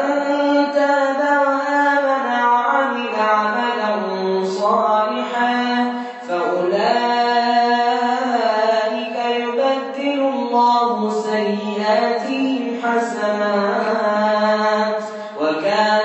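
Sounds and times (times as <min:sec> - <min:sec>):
man chanting a melodic recitation: 0:00.0 - 0:16.0.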